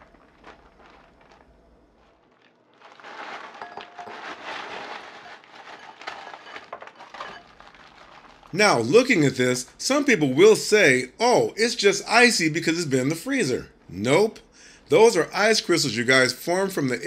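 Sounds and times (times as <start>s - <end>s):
plastic bag crinkling: 0.0s - 9.2s
frozen fruit clinking into glass bowl: 2.8s - 8.5s.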